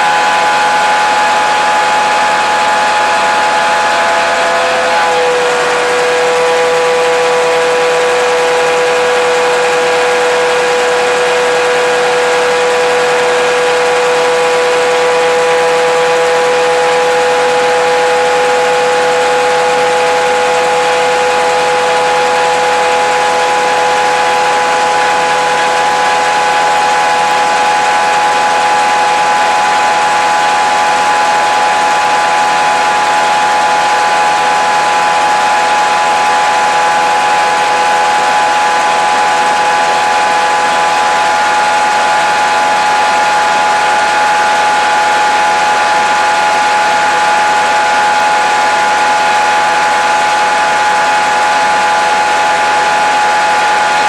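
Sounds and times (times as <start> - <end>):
constant whine: 0.0 - 54.0
diesel engine running loud: 0.0 - 54.0.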